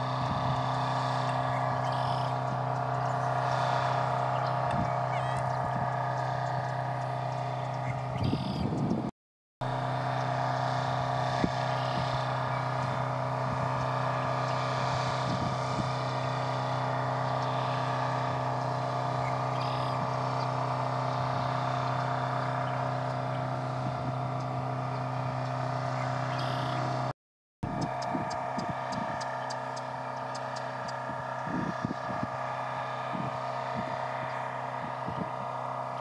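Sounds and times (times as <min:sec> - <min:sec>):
steady engine drone: 0:00.0 - 0:36.0.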